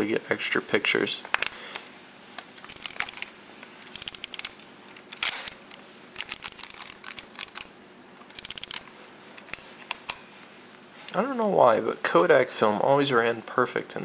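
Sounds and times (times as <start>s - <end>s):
film-advance lever ratcheting clicks: 2.6s - 10.2s.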